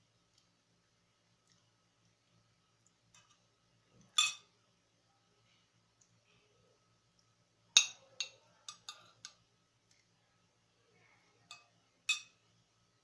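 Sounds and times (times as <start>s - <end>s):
cutlery clinking on a ceramic plate: 4.1s - 4.5s, 7.8s - 9.4s, 11.5s - 12.4s.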